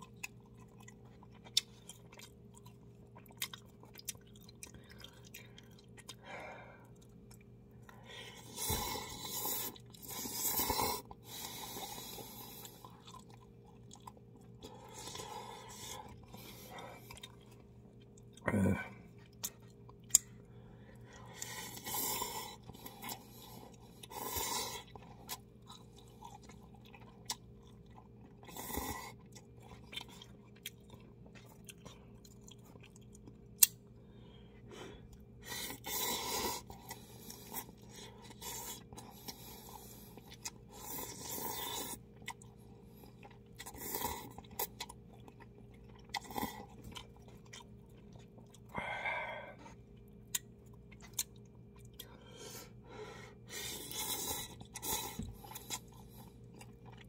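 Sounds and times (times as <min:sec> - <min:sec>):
quiet chewing: 0:00.0 - 0:52.8, 0:53.4 - 0:57.0
person slurping noodles: 0:08.4 - 0:12.7.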